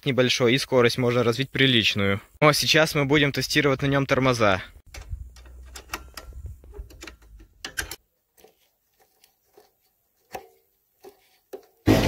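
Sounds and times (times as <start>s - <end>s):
metallic clicks from spanner: 4.9s - 8.0s.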